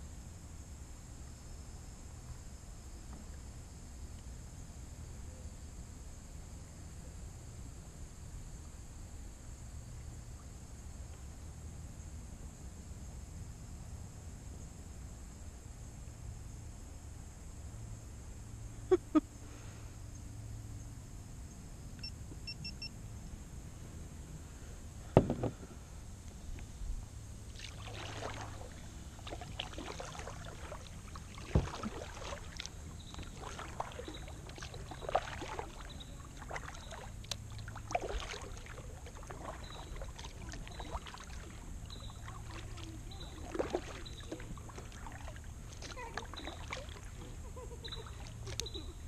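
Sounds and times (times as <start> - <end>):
paddle knocking against kayak: 25.1 - 25.8, 31.4 - 32.4
water running off paddle: 27.4 - 48.8
paddle splashing in water: 27.4 - 49.0.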